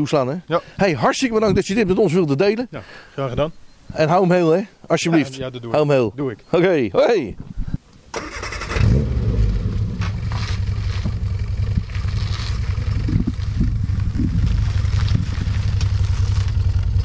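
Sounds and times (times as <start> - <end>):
car engine idling: 8.2 - 17.0.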